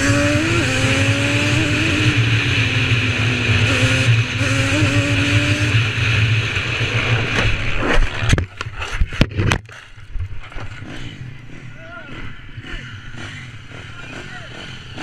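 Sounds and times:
quad bike engine running: 0.0s - 15.0s.

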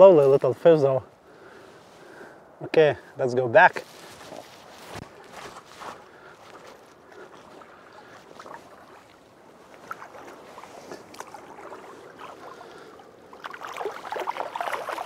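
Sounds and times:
river water splashing: 3.8s - 15.0s.

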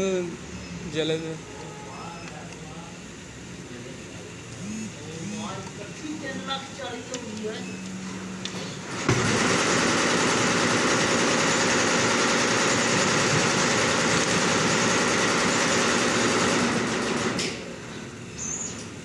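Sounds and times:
loud mechanical rushing noise: 3.2s - 5.6s, 8.4s - 18.3s.

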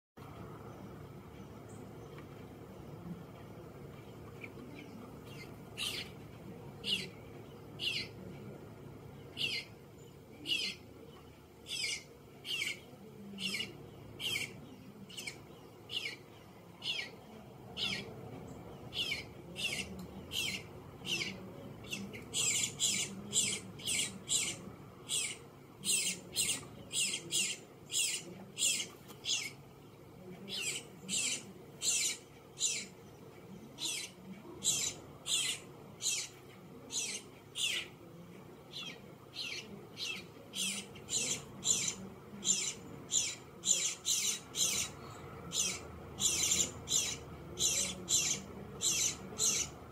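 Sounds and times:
fledgling bird begging calls: 9.4s - 9.7s, 18.9s - 29.6s, 30.5s - 33.0s, 33.8s - 37.9s, 38.7s - 49.8s.

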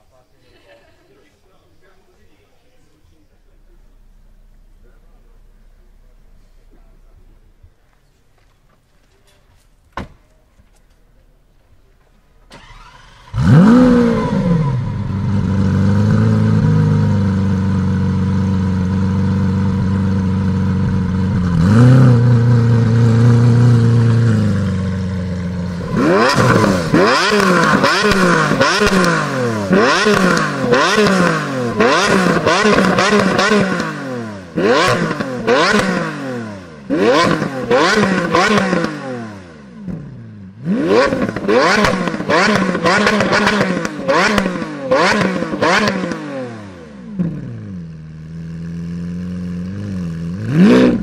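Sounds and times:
car engine idling: 1.7s - 9.2s, 10.8s - 46.2s, 46.8s - 51.0s
sports car engine starting: 2.7s - 9.4s, 10.8s - 51.0s
car engine revving: 12.5s - 51.0s.

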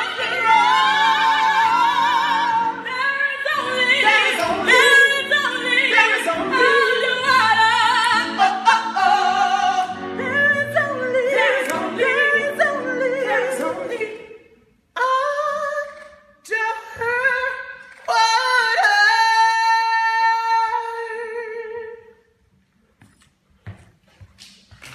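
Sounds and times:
group singing a cappella: 0.0s - 14.4s.

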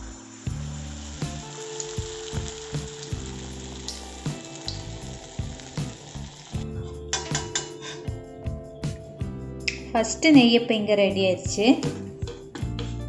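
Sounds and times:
batter sizzling in hot oil: 0.0s - 8.0s
background music with beat: 0.5s - 13.0s.

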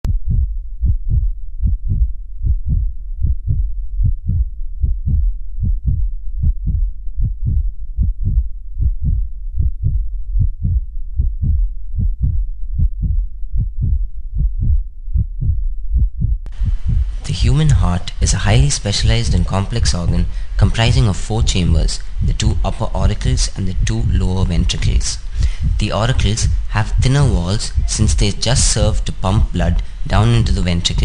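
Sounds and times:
heartbeat thumps: 0.0s - 30.1s.

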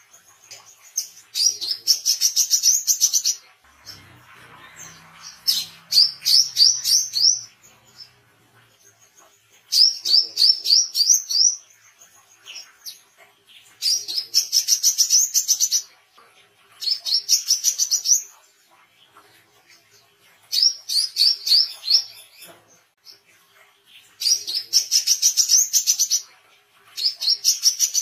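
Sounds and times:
bird singing high sharp notes: 3.7s - 8.3s.

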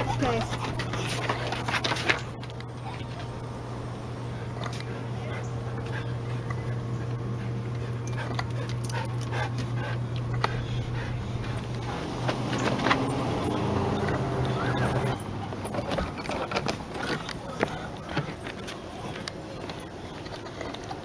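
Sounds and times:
dog whimpering: 0.0s - 1.4s, 12.6s - 21.0s
steady low hum: 0.0s - 21.0s
footsteps on wooden boards: 15.5s - 19.8s.

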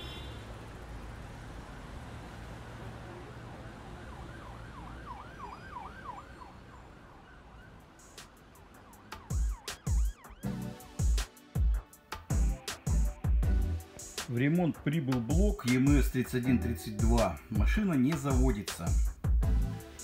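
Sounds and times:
city traffic rumble: 0.0s - 12.6s
emergency siren wailing: 2.7s - 11.2s
heavy bass music thumps: 9.2s - 14.6s, 15.3s - 20.0s.

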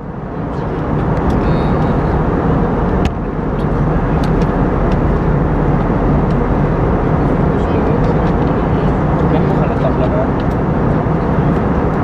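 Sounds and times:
airflow and jet engine roar in cabin: 0.0s - 12.0s.

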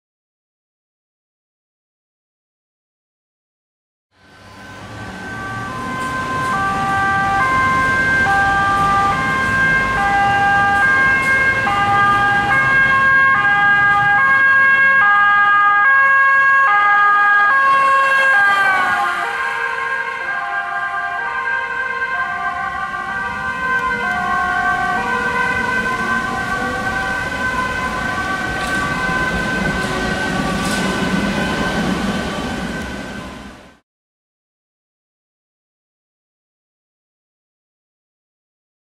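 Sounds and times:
road and engine rumble: 4.2s - 33.8s
two-tone siren: 4.3s - 33.7s.

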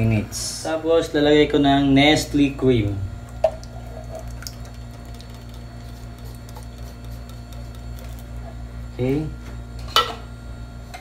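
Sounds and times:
electrical hum: 0.0s - 11.0s
cream stirred in sauce: 3.7s - 8.6s.

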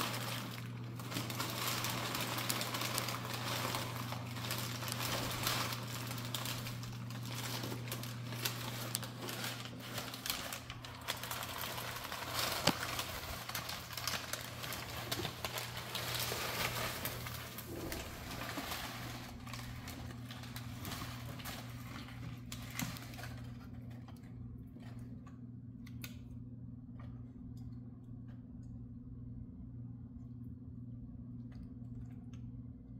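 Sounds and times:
paper rustling and crinkling: 0.0s - 24.2s
steady low hum: 0.0s - 32.9s.

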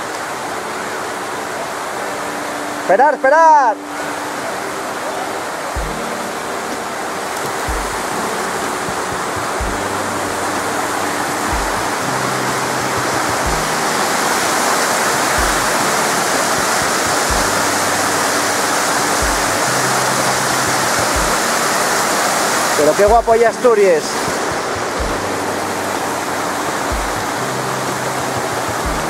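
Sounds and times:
low held chords: 0.0s - 29.0s
water rushing over rocks: 0.0s - 29.0s
music with deep bass beat: 5.8s - 6.1s, 7.6s - 14.1s, 15.2s - 18.1s, 19.0s - 21.6s, 23.0s - 23.4s, 24.7s - 29.0s.

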